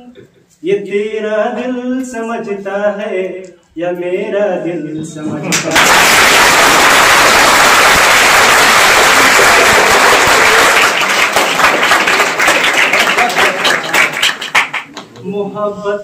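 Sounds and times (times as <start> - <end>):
audience clapping: 5.5 - 15.3.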